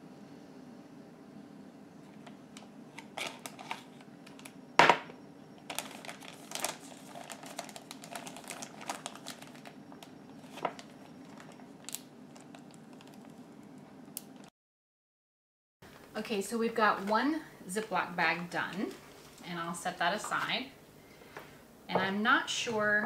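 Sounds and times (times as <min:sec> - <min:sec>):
plastic bag crinkling and clicking: 0:02.2 - 0:04.6, 0:05.6 - 0:14.5.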